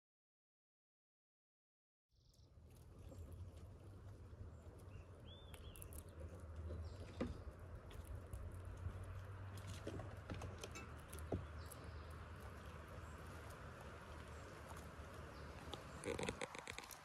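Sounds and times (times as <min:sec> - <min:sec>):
squirrel claws scratching and clicking: 0:04.6 - 0:17.0.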